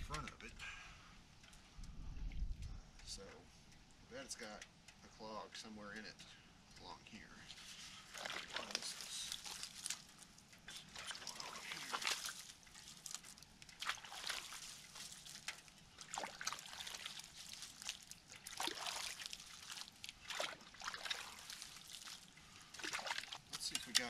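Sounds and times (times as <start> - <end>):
rake sloshing in water: 7.5 - 24.0.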